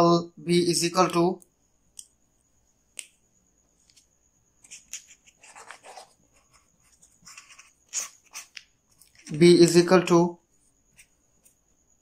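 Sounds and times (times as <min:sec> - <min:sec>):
marker pen scratching on paper: 0:03.8 - 0:09.4.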